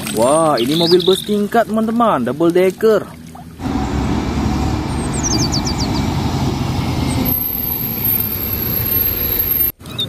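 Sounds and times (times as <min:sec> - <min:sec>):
bus engine droning: 0:03.6 - 0:09.8.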